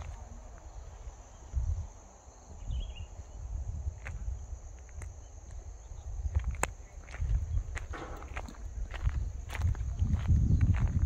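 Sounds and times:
high insect drone: 0.0s - 11.0s
footsteps on gravel: 6.2s - 11.0s.

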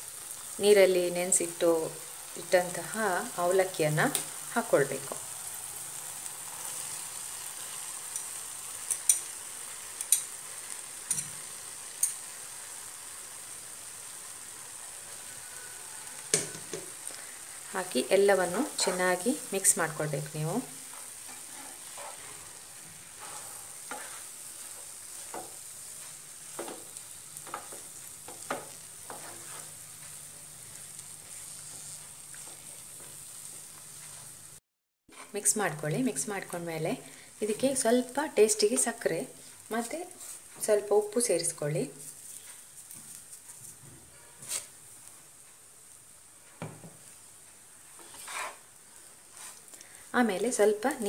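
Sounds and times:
faint sizzle: 0.0s - 51.0s
spoon stirring in a frying pan: 3.6s - 13.3s, 14.3s - 34.5s, 41.9s - 50.1s
spatula scraping pan: 20.7s - 34.4s, 47.9s - 49.7s.

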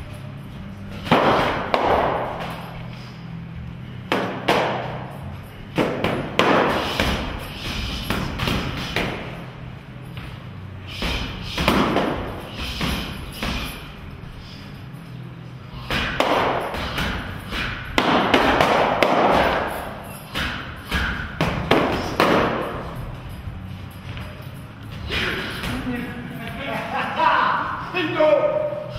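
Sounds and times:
boxing gloves hitting pad sticks: 0.9s - 2.7s, 4.0s - 5.1s, 5.7s - 9.5s, 10.9s - 13.9s, 15.8s - 23.2s.

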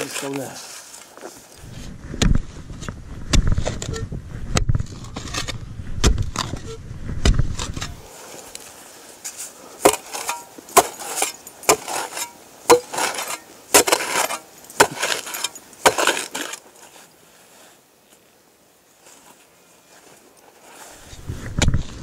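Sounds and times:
scrape of soil and stones: 0.0s - 18.3s, 18.9s - 22.0s
shovel chopping frozen ground: 2.1s - 8.0s, 9.3s - 16.6s.

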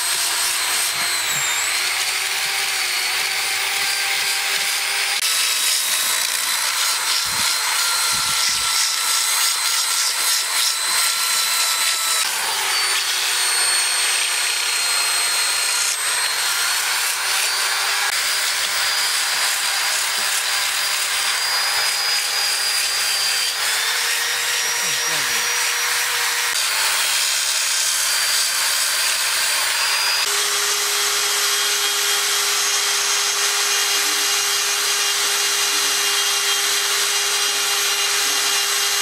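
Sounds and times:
abrasive disc scratching wood: 0.0s - 27.0s
electric drill whining: 0.0s - 39.0s.

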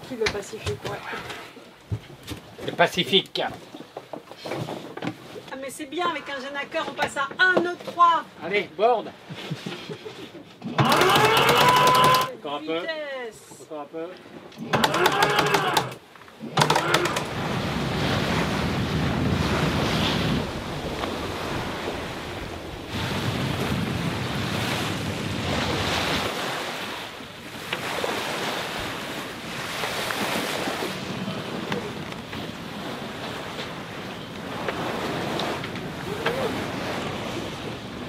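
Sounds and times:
waves washing past: 14.4s - 38.0s
wind buffeting microphone: 17.0s - 26.5s.

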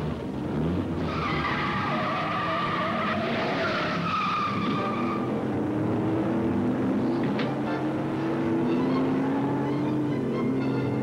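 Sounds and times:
engine rumble: 0.0s - 11.0s
car tyres squealing: 0.9s - 5.6s, 8.2s - 11.0s.

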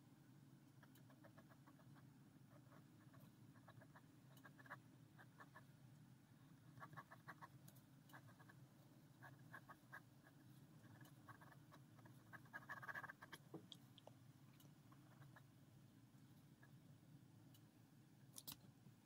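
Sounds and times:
ballpoint pen scratching on paper: 9.2s - 13.4s.

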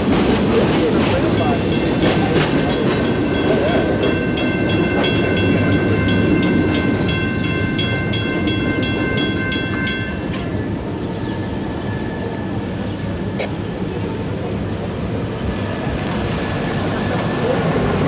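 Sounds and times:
crossing warning bell ringing: 0.0s - 13.4s.

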